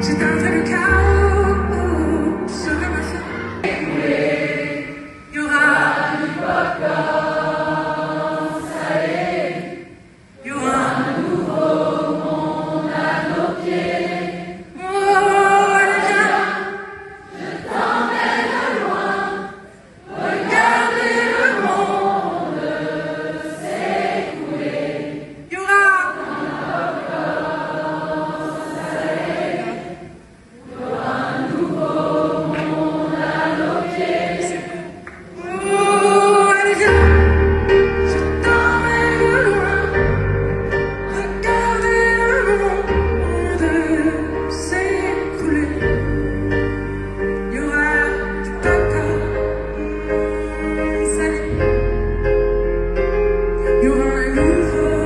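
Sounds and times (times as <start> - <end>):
crowd singing a pop song: 3.2 - 9.9, 17.3 - 25.3, 26.3 - 35.0.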